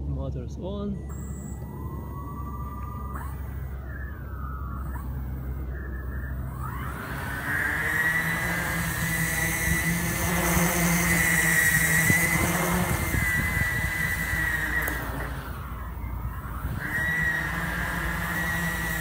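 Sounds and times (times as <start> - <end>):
quadcopter propellers whining: 0.0 - 19.0.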